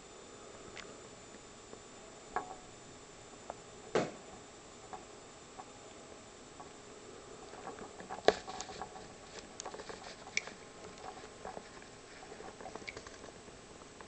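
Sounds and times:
beak pecking and clicking: 7.6 - 13.4.

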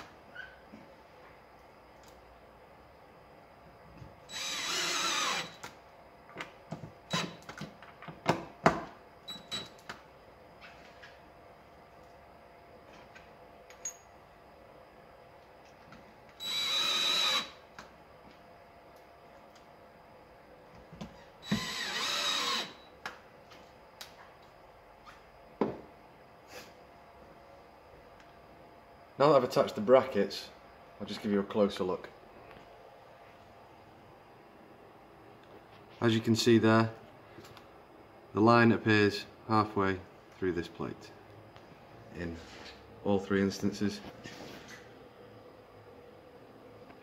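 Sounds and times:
cordless drill driving screw: 4.3 - 5.6, 16.4 - 17.6, 21.4 - 22.8.

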